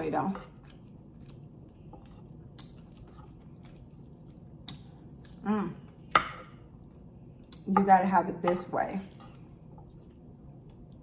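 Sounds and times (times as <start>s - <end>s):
wet chewing sounds: 0.5s - 6.1s, 9.2s - 11.0s.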